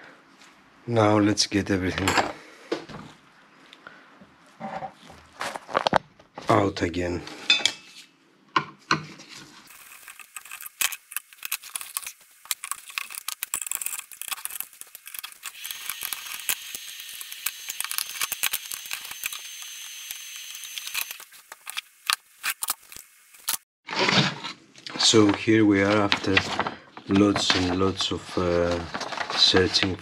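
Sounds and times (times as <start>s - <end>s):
screwdriver and screws clinking: 9.7s - 21.8s.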